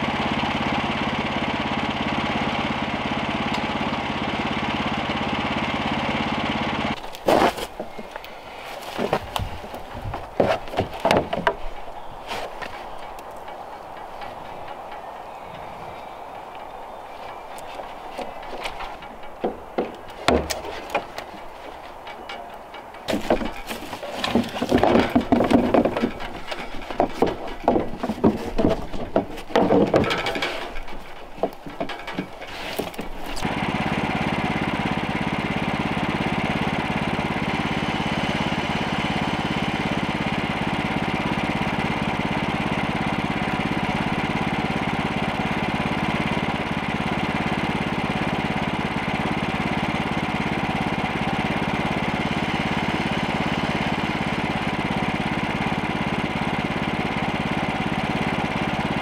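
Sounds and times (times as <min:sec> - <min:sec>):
small gasoline engine idling: 0:00.0 - 0:07.1, 0:32.5 - 0:59.0
metal clanks and knocks: 0:08.9 - 0:15.1, 0:17.8 - 0:33.5.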